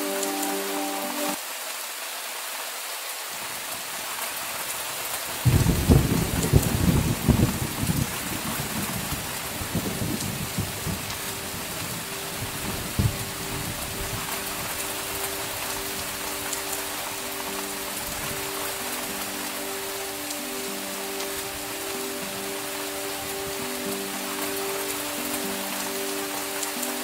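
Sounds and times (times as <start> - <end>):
steady rain: 0.0 - 27.0
thunder rumbling and crackling: 5.4 - 16.8.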